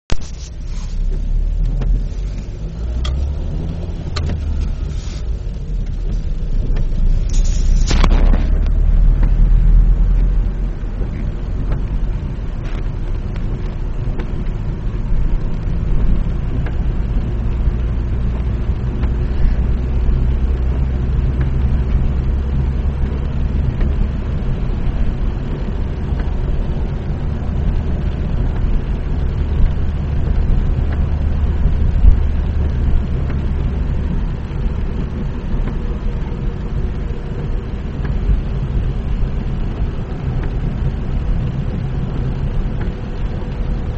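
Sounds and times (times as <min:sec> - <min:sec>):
car engine and tyres rumbling: 0:00.0 - 0:43.9
tyre hiss on wet road: 0:00.2 - 0:01.3, 0:04.4 - 0:05.5, 0:06.1 - 0:08.6.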